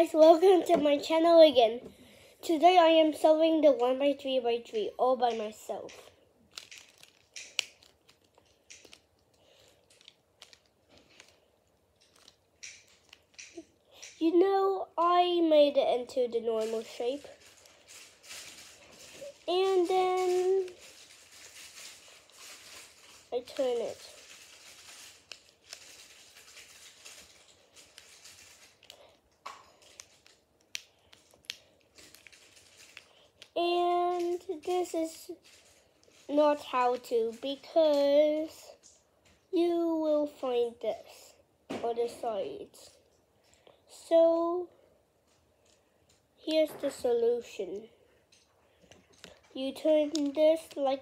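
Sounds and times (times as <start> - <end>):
plastic puzzle cube clicking: 6.6 - 9.0, 12.0 - 14.2.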